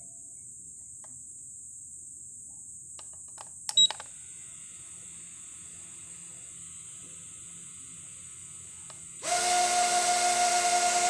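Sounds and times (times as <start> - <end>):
tiny motors whining: 4.3 - 11.0.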